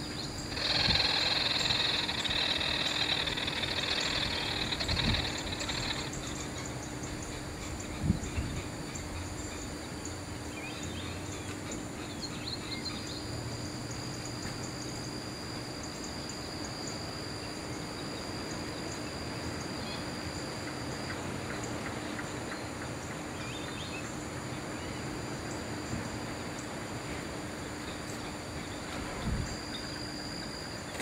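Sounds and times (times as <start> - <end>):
insect thin high tone: 0.0 - 11.2, 12.3 - 22.8, 27.1 - 31.0
small birds chirping: 0.0 - 15.1
insects buzzing: 0.0 - 31.0
low steady hum: 0.0 - 31.0.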